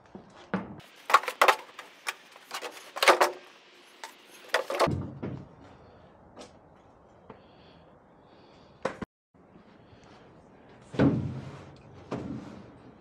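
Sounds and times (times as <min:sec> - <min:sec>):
shovel scraping steel cart bed: 0:00.8 - 0:04.9.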